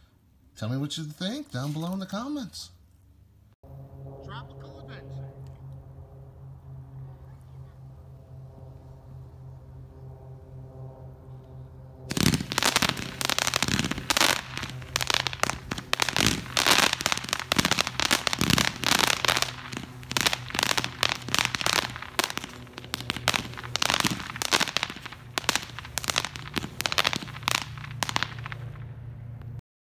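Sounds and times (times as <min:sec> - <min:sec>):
fireworks cake firing shots: 0:12.1 - 0:28.8
dense firework crackling: 0:12.1 - 0:29.3.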